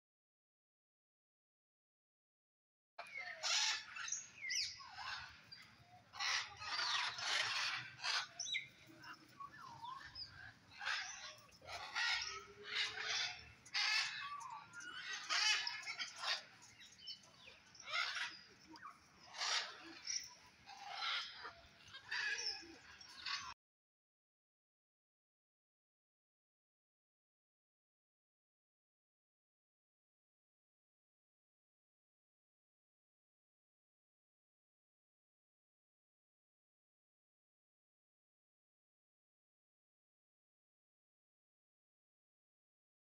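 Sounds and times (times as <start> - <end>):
small birds chirping: 3.0 - 23.6.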